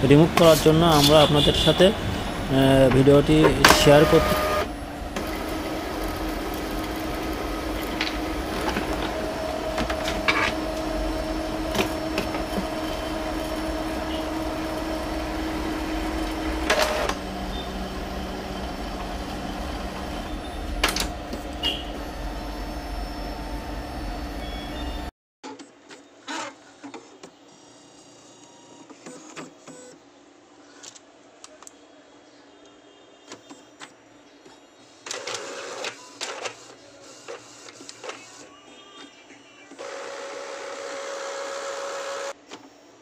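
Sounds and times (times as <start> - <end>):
printer mechanism humming: 0.0 - 25.1, 34.9 - 38.5, 39.1 - 42.7.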